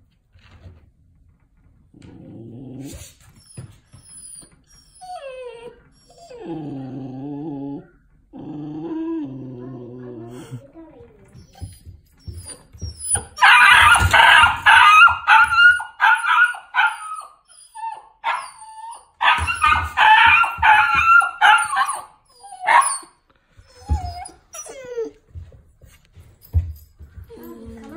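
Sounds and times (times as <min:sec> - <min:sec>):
dog whining: 0:02.1 - 0:10.6, 0:11.2 - 0:25.4
dog barking high-pitched: 0:13.4 - 0:17.3, 0:18.2 - 0:18.5, 0:19.2 - 0:23.1.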